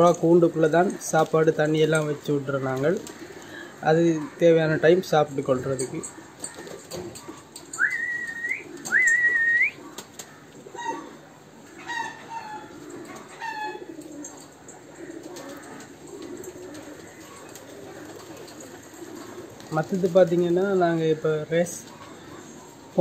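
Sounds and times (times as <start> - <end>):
pigeons cooing: 0.0 - 23.0
bird calls: 3.0 - 23.0
rising whistles: 7.8 - 9.8.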